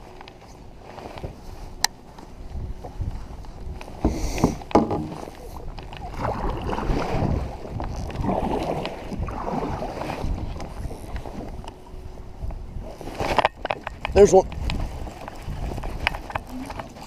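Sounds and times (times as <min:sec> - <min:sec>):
wind on microphone: 0:00.0 - 0:17.0
paddle splashing through water: 0:03.9 - 0:11.5, 0:12.8 - 0:17.0
paddle knocking against kayak: 0:04.0 - 0:06.2.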